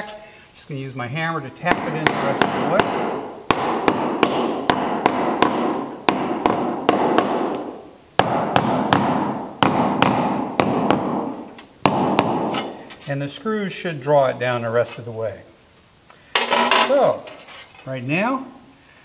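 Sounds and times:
hammer knocking wooden plank: 1.7s - 7.6s, 8.2s - 12.6s.

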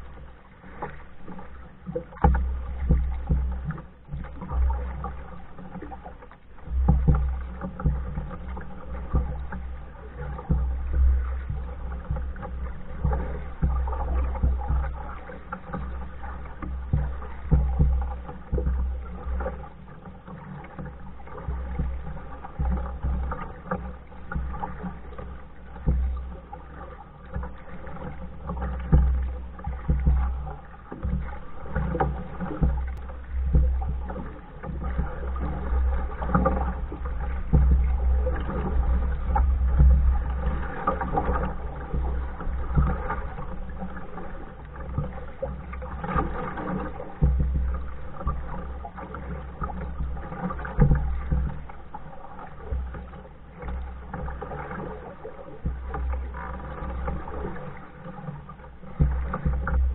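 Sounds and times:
paddle splashing in water: 0.0s - 59.9s
steady low rumble: 20.9s - 54.7s.

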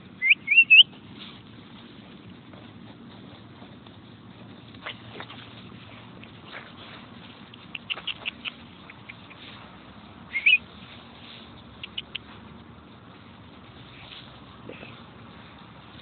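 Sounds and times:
puppies squeaking: 0.2s - 0.9s, 7.4s - 9.5s, 10.3s - 10.6s, 11.8s - 12.3s.

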